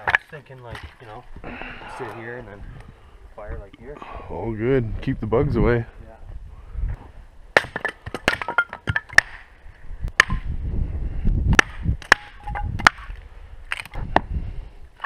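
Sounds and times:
firewood cracking and knocking: 0.0 - 1.1, 7.5 - 9.5, 10.1 - 10.4, 11.5 - 14.3.

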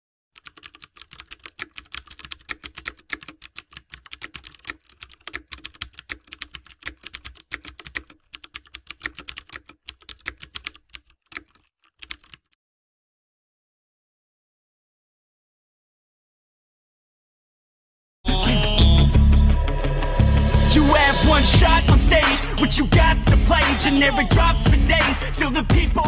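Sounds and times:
computer keyboard typing: 0.4 - 12.6.

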